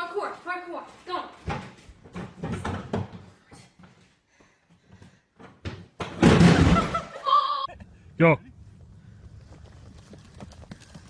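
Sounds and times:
person falling onto floor: 5.6 - 7.1
high-pitched cry: 7.2 - 7.8.

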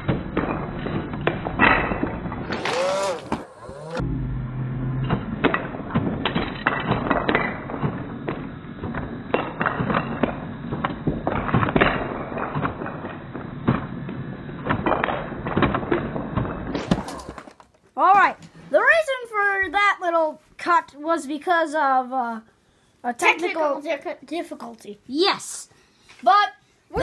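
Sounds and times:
wooden blocks clattering on floor: 5.1 - 13.2, 14.7 - 18.5
foam darts striking blocks: 14.6 - 17.8.

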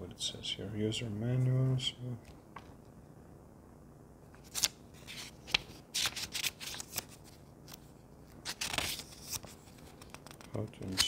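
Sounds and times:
paper rustling and crackling: 4.4 - 11.0.

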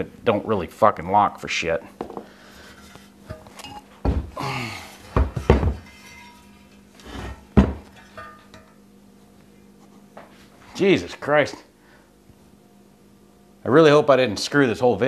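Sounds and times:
metal clanks and thuds on workbench: 2.0 - 2.3, 4.0 - 4.4, 5.1 - 6.3, 7.2 - 7.9.

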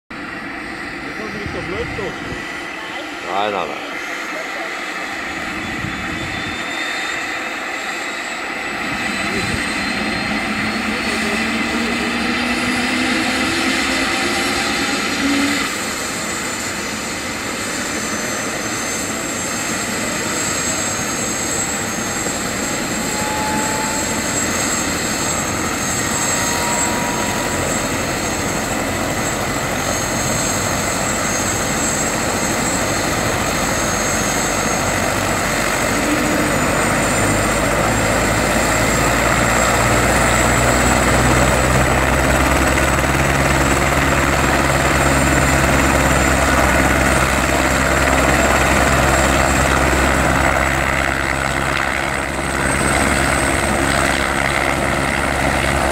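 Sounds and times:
helicopter rotor beat: 0.1 - 55.9
helicopter turbine whine: 0.1 - 55.9.

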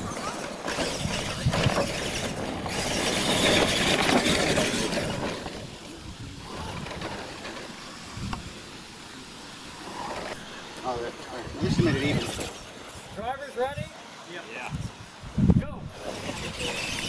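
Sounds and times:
radio-controlled trucks racing over dirt: 0.0 - 13.9, 15.8 - 17.0.

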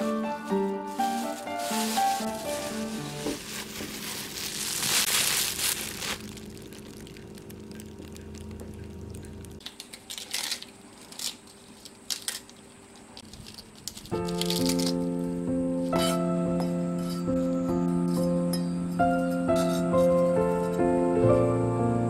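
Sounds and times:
plastic bag crinkling: 0.9 - 15.1
lettuce leaves tearing: 1.0 - 12.5, 13.2 - 15.2
steady low hum: 3.0 - 9.7.

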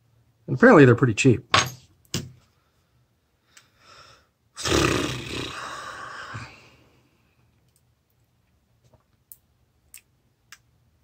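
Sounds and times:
short breath in: 3.4 - 4.3
person exhaling breathily: 5.3 - 7.1.

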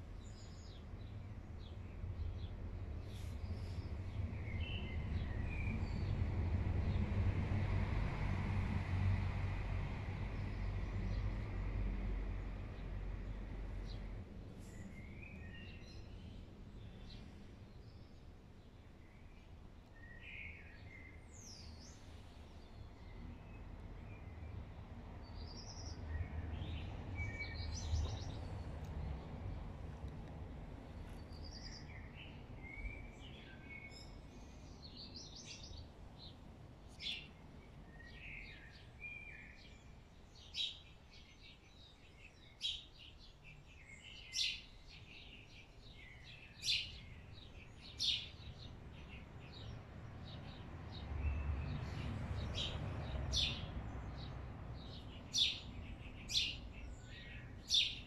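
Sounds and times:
songbirds singing: 0.0 - 58.0.

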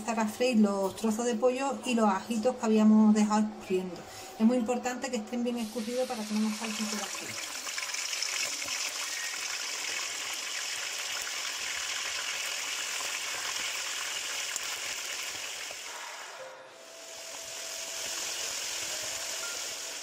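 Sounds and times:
chicken sizzling in hot oil: 5.6 - 20.0.

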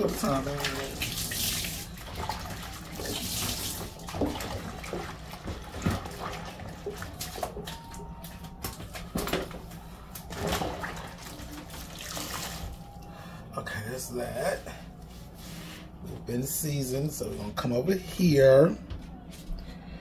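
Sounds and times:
faucet running into sink: 0.0 - 7.6
water splashing: 0.0 - 8.0, 10.2 - 12.8
knocks and clatters in sink: 4.1 - 7.7.

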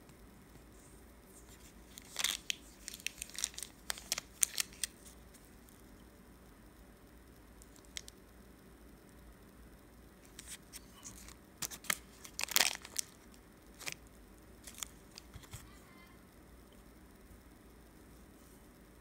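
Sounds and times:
plastic wrapper crinkling and tearing: 1.4 - 5.1, 7.6 - 8.1, 10.3 - 14.0, 14.6 - 15.6.

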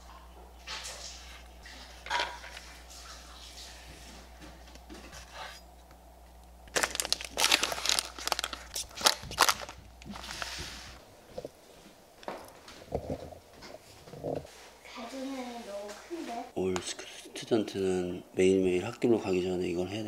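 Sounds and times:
plastic containers crinkling: 6.7 - 10.8.

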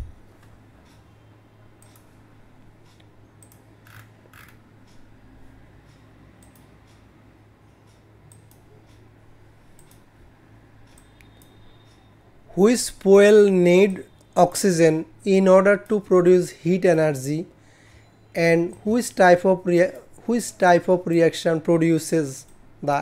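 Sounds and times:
low steady hum: 0.0 - 23.0
computer mouse clicks: 1.8 - 2.2, 2.8 - 5.0, 5.9 - 7.0, 7.9 - 9.0, 9.8 - 10.1, 10.9 - 12.1.

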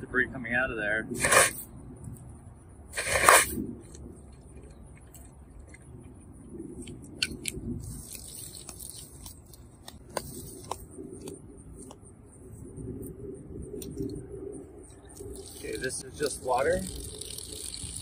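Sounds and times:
compressed air blast: 1.2 - 1.7, 2.9 - 3.6.

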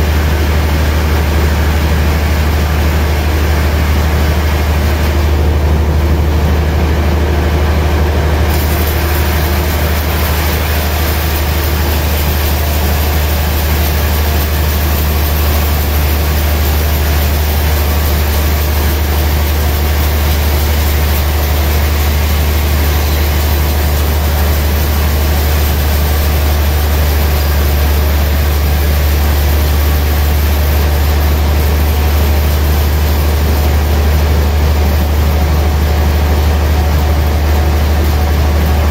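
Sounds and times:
sawmill low hum: 0.0 - 38.9
saw blade cutting wood: 8.5 - 34.4.

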